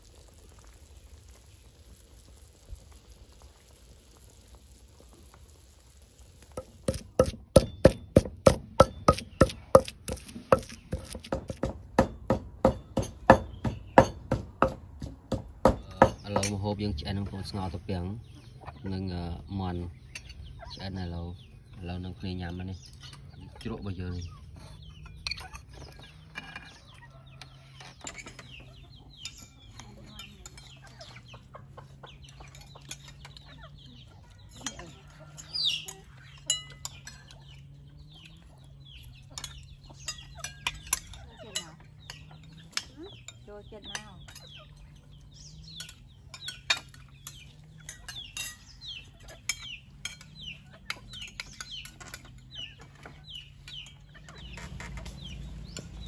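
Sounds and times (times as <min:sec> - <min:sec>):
chickens clucking and calling: 0:17.2 - 0:21.8, 0:22.9 - 0:56.0
dishes clinking: 0:32.3 - 0:33.7, 0:34.4 - 0:37.6, 0:44.0 - 0:55.2.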